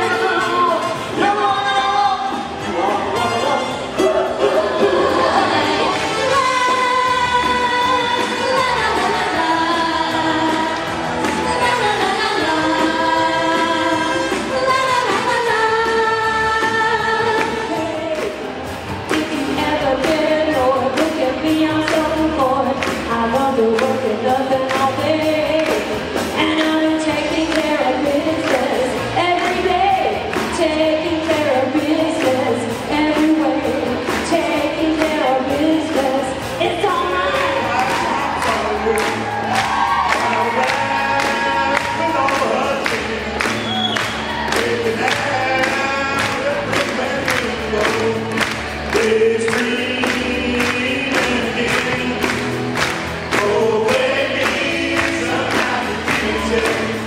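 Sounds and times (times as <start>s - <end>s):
music: 0.0s - 57.0s
people singing into microphones: 4.0s - 57.0s
steady beat: 18.1s - 57.0s.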